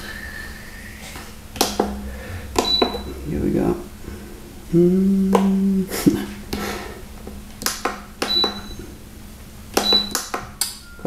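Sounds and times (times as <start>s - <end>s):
low buzzing tone: 0.0s - 6.5s.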